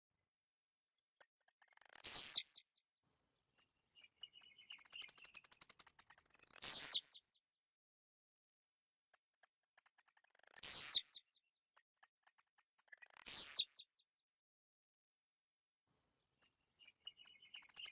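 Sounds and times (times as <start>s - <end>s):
bird singing high sharp ticks: 1.2s - 2.8s, 3.6s - 7.4s, 9.1s - 14.0s, 16.4s - 17.9s.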